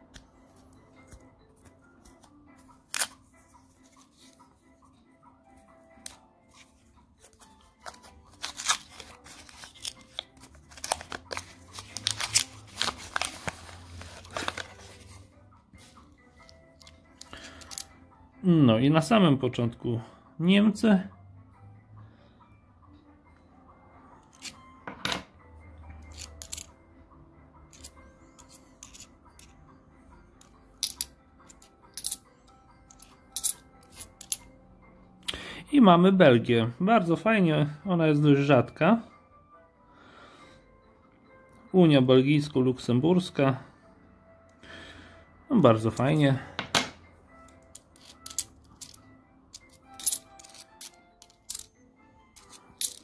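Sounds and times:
faint background music: 0.0s - 53.0s
paper wrapper crinkling: 7.8s - 15.1s
coins clinking: 16.8s - 17.9s, 26.0s - 26.7s, 27.7s - 29.5s, 30.4s - 32.3s, 32.9s - 34.5s, 47.5s - 51.8s, 52.4s - 53.0s.

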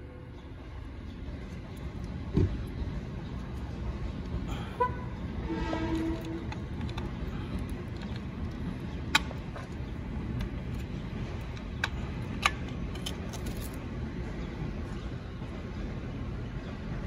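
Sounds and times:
steady low rumble: 0.0s - 17.0s
wires rattling: 5.9s - 13.8s.

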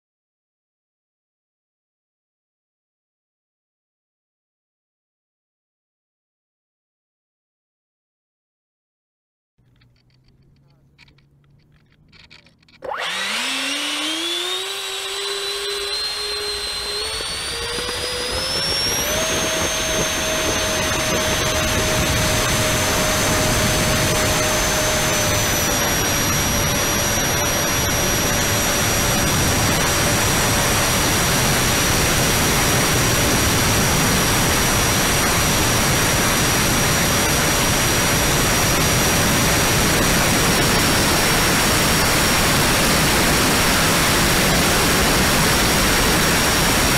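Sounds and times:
electric fans whining: 9.6s - 46.9s.

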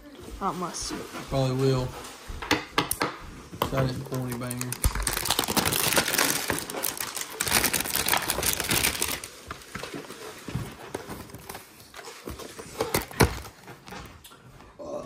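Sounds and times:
cardboard packaging rustling: 3.8s - 14.2s.

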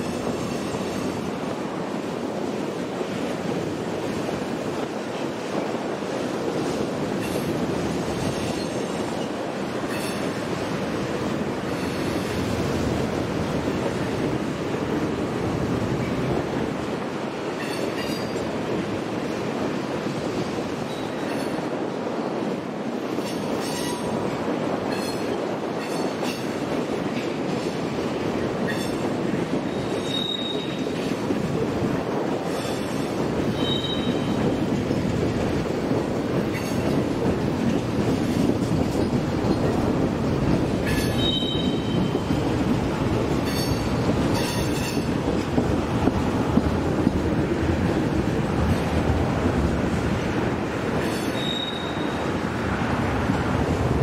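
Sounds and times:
freight train rumbling past: 0.0s - 54.0s
wheels clicking over rail joints: 23.1s - 52.0s
wheel squeals: 29.7s - 31.0s, 33.5s - 34.4s, 40.9s - 42.2s, 51.0s - 52.2s.

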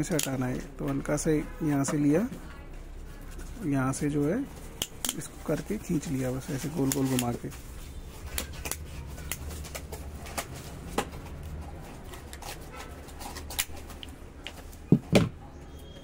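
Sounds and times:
cable stripper clicking and scraping: 4.7s - 5.6s, 8.2s - 14.6s.

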